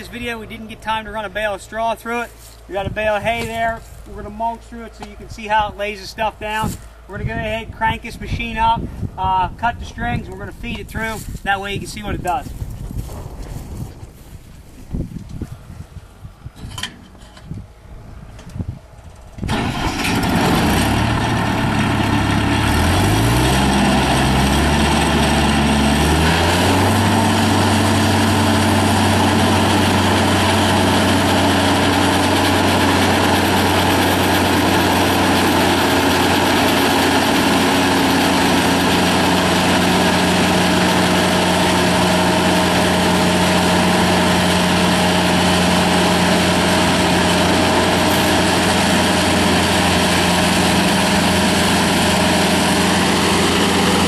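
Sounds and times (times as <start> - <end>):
straw blower engine running: 0.0 - 9.3, 18.3 - 54.0
blower rushing noise: 0.0 - 54.0.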